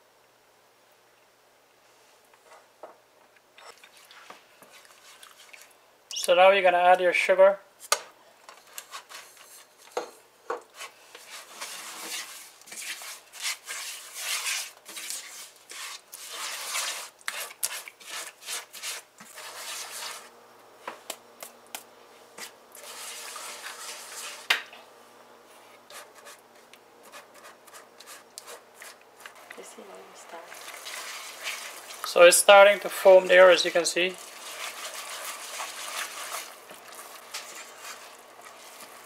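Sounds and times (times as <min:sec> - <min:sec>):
spatula scraping a pan: 0:08.6 - 0:10.1, 0:10.7 - 0:20.3, 0:22.4 - 0:24.5, 0:25.8 - 0:29.7, 0:30.5 - 0:39.0.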